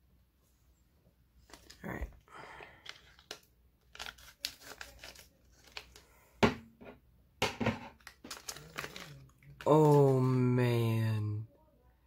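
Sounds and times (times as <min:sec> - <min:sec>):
plastic bag crinkling: 0:01.4 - 0:06.0, 0:07.9 - 0:10.4
scissors cutting plastic: 0:02.8 - 0:06.0.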